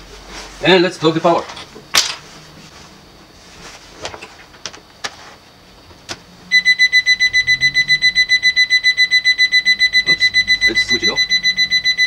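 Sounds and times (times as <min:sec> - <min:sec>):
shrill electronic alarm beeping: 0:06.4 - 0:12.0.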